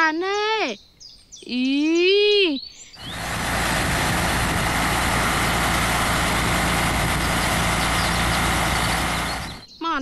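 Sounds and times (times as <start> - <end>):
crane boom extending: 3.0 - 9.6
truck engine running: 3.0 - 9.7.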